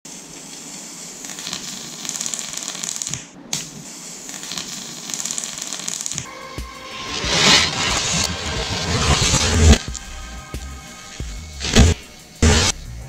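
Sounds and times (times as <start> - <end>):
electric arc buzzing and crackling: 1.2 - 3.2, 4.3 - 6.3, 11.2 - 12.8.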